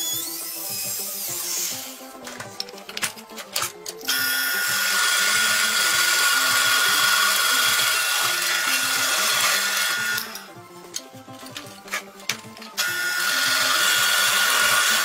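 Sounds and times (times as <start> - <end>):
drill press boring into wood: 4.1 - 10.4, 12.8 - 15.0.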